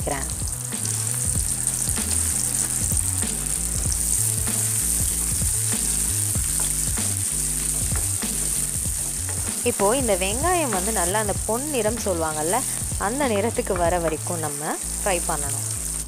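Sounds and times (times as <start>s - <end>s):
shallots sizzling in hot oil: 0.0s - 16.0s.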